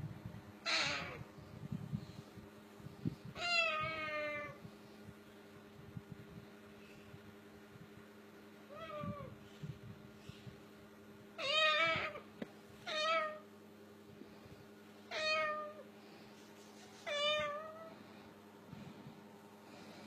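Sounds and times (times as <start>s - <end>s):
cockatoo mimicking cat meows: 0.6s - 1.2s, 3.4s - 4.6s, 8.7s - 9.4s, 11.4s - 12.2s.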